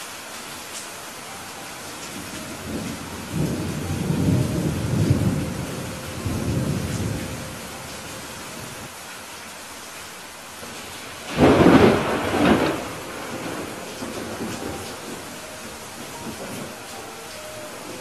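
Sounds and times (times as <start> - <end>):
rain hissing: 0.0 - 18.0
rolling thunder rumble: 1.9 - 8.9, 10.6 - 18.0.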